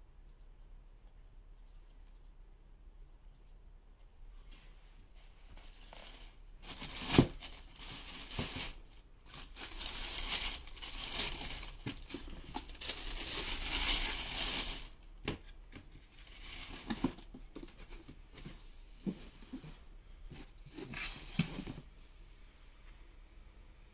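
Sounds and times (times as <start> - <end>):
tissue paper rustling: 5.5 - 15.0, 16.1 - 17.2.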